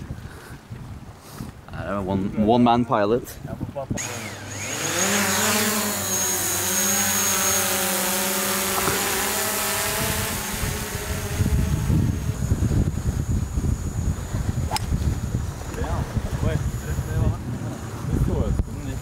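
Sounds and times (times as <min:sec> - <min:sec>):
drone propellers buzzing: 0:04.0 - 0:19.0.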